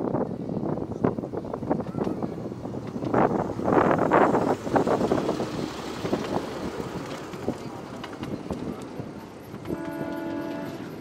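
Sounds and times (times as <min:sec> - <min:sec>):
miniature train rolling past: 0:00.0 - 0:11.0
wheels clicking over rail joints: 0:00.0 - 0:11.0
wind on microphone: 0:00.0 - 0:11.0.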